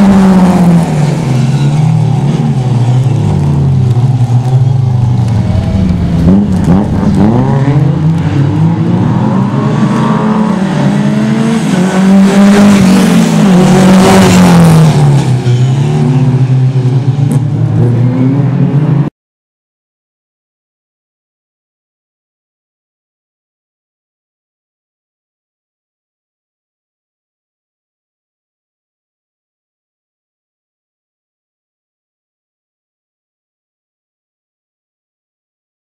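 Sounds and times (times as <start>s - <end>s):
rally car engine revving: 0.0s - 19.1s.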